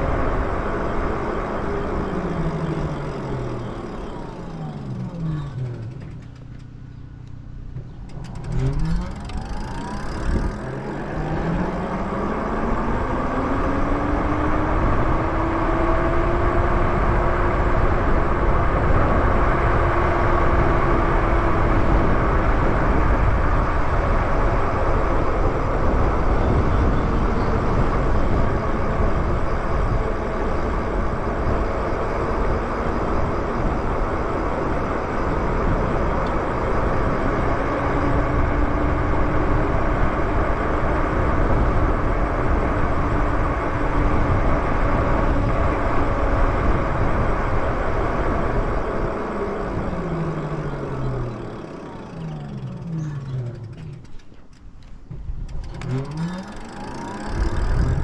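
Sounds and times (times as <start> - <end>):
wind buffeting microphone: 7.8 - 51.6, 57.2 - 58.0.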